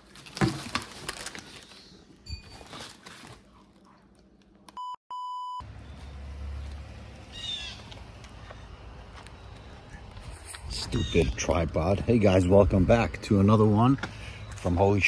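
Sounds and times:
electronic beep: 4.8s - 5.6s.

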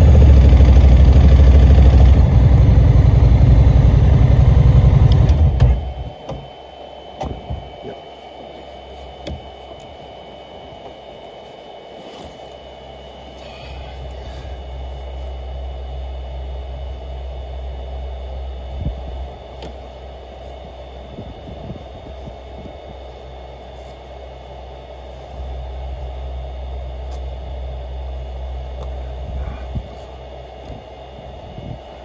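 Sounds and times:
car engine and tyre noise: 0.0s - 5.8s.

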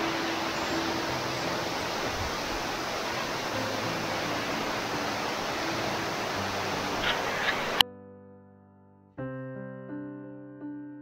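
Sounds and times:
waterfall and rocky stream rushing: 0.0s - 7.8s.

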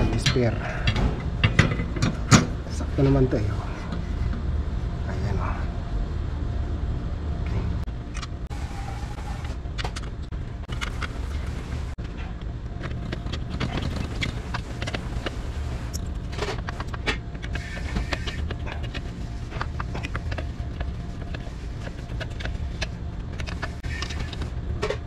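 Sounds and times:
low background hum: 0.0s - 25.0s.

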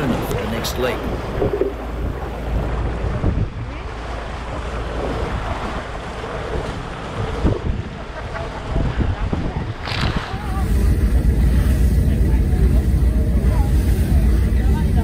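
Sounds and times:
water rushing along hull: 0.0s - 15.0s
wind buffeting microphone: 0.0s - 15.0s
spray hissing: 10.4s - 15.0s.

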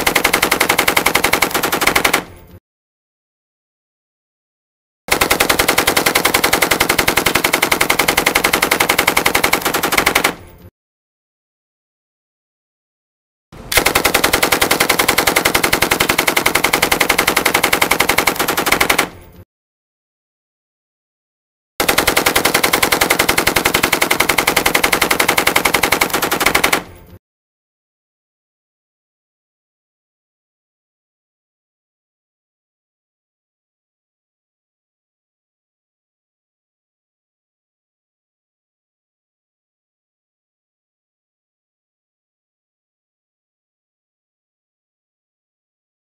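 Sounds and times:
machine gun firing burst: 0.0s - 2.3s, 5.1s - 10.4s, 13.7s - 19.1s, 21.8s - 27.2s.

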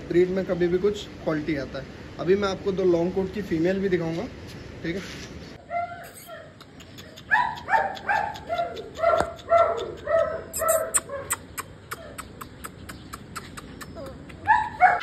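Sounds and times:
puppy yelping: 5.6s - 15.0s.

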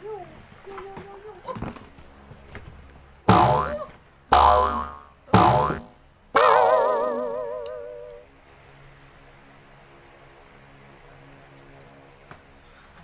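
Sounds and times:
faint steady hum: 0.0s - 13.0s
wavering tone with vibrato: 3.3s - 8.0s.

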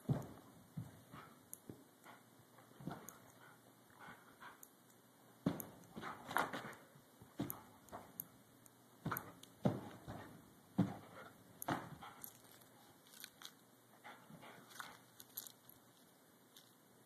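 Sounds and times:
dog paws thumping on carpet: 0.0s - 3.5s, 5.4s - 8.2s, 9.0s - 12.6s.

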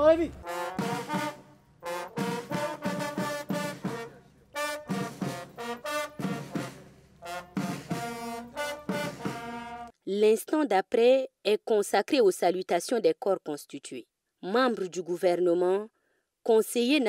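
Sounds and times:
military brass band playing: 0.3s - 9.9s.

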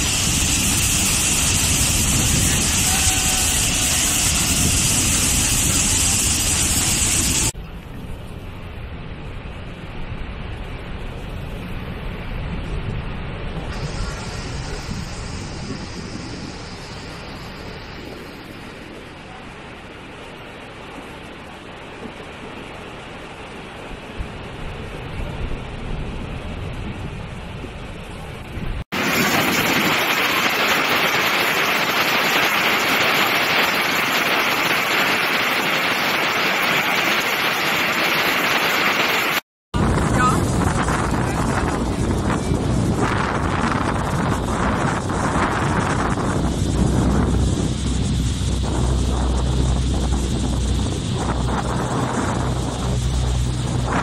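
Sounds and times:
bright hiss: 0.0s - 7.6s, 13.6s - 19.8s, 29.0s - 39.4s, 40.2s - 54.0s
waterfall rushing: 0.0s - 7.6s, 28.9s - 54.0s.

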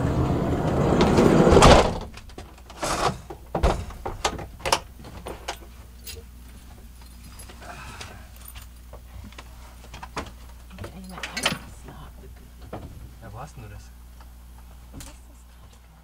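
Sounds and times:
sliding van door closing: 0.0s - 2.2s, 2.8s - 4.0s.

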